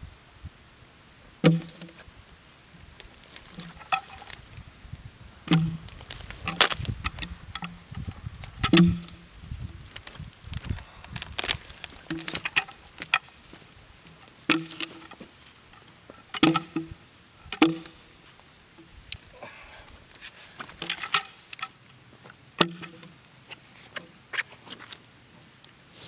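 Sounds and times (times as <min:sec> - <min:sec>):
hook knocking and clanking on log: 0:03.4 - 0:04.4, 0:05.5 - 0:09.2, 0:11.4 - 0:13.4, 0:14.5 - 0:18.1, 0:20.6 - 0:22.0, 0:22.6 - 0:23.2.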